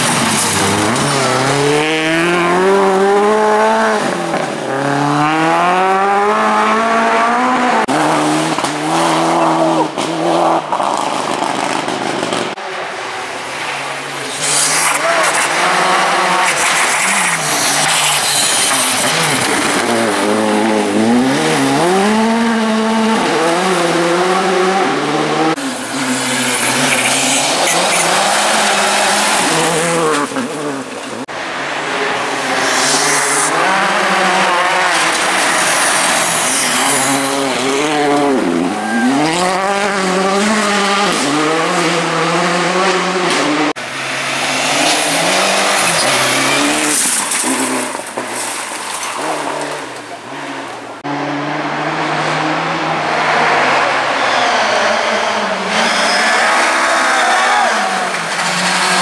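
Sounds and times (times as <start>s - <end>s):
rally car engines revving: 0.0s - 59.0s
gravel and tyres hissing: 12.7s - 21.2s, 25.6s - 38.4s.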